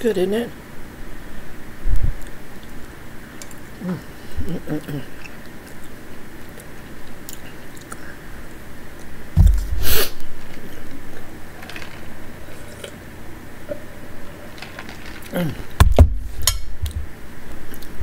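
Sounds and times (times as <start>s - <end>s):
chewing and mouth sounds: 4.9s - 8.2s.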